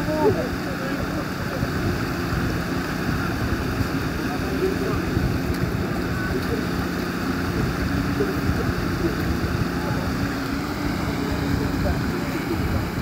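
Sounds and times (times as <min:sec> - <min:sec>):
rushing water: 0:00.0 - 0:13.0
van engine humming: 0:00.0 - 0:13.0
wind buffeting microphone: 0:00.0 - 0:13.0.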